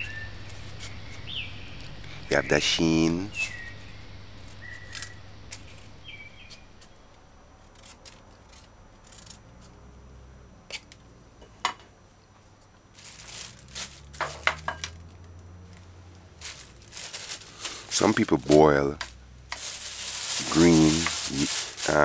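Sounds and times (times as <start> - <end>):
plastic bags crinkling: 3.1 - 8.2, 12.9 - 15.2, 16.3 - 22.0.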